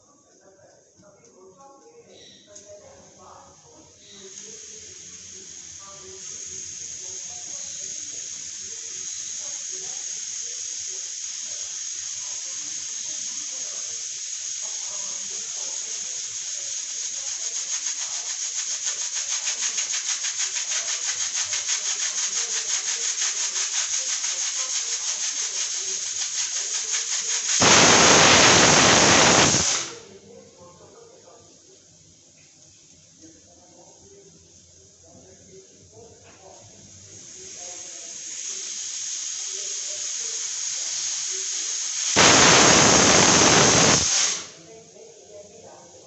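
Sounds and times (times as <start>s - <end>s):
pressure cooker steam whistle: 4.0s - 30.0s, 37.2s - 44.6s
pressure cooker hissing steam: 4.0s - 30.1s, 36.0s - 46.0s.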